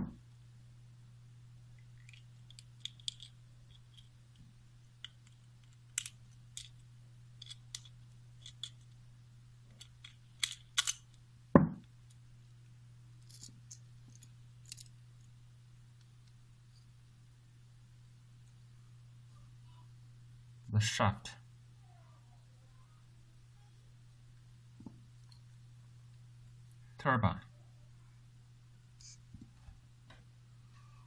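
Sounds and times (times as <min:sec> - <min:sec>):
loud thump: 0:11.6 - 0:11.8.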